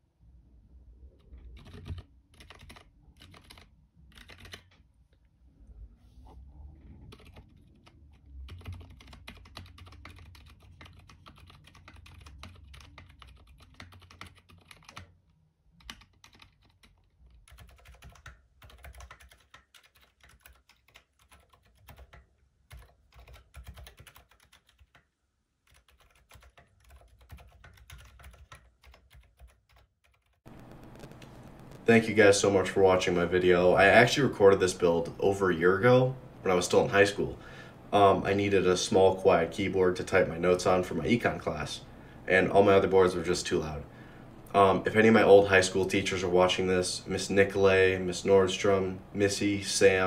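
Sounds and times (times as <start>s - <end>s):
muted keyboard keystrokes: 1.5s - 4.8s, 7.1s - 15.2s, 15.8s - 25.0s, 25.7s - 30.4s.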